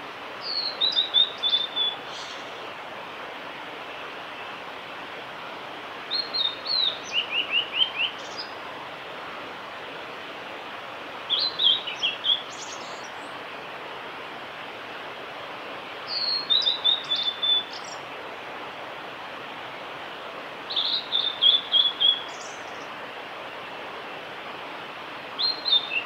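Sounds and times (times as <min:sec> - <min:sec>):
background hiss: 0:00.0 - 0:26.0
flycatcher singing whistled notes: 0:00.4 - 0:02.5, 0:06.1 - 0:08.5, 0:16.1 - 0:18.0, 0:20.7 - 0:22.8, 0:25.4 - 0:26.0.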